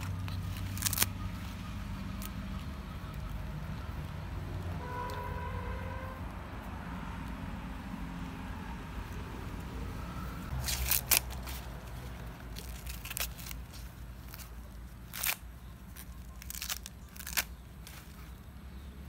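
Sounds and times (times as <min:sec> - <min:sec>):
corn husks tearing: 0:00.0 - 0:06.4, 0:10.5 - 0:18.6.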